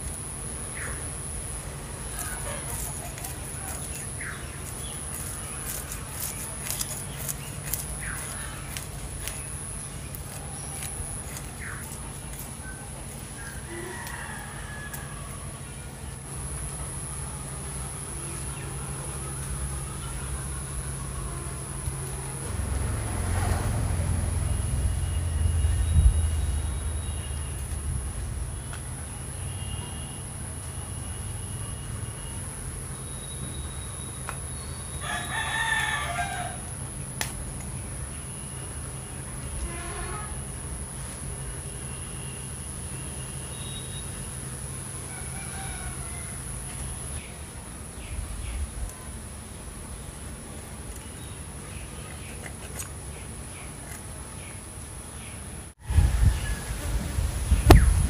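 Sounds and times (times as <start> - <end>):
steady high-pitched whine: 0.0 - 23.2
rooster crowing: 2.1 - 3.3, 13.4 - 15.6, 34.9 - 36.8, 45.0 - 46.9, 55.8 - 57.0.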